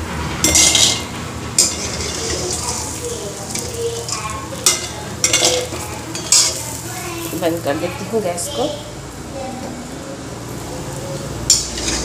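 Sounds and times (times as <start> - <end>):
spoon scraping a pan: 0.4 - 7.4, 11.5 - 12.0
oil sizzling in a pan: 0.4 - 8.8.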